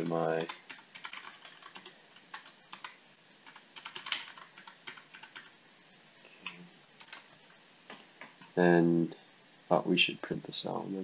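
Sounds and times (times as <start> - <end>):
typing on computer keyboard: 0.0 - 5.5, 6.4 - 7.3.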